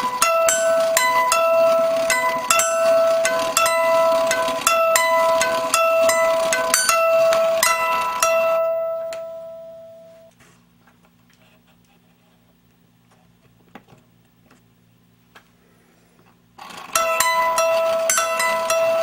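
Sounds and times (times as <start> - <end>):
plucked metal strings: 0.0 - 10.2
faint low hum: 0.1 - 16.6.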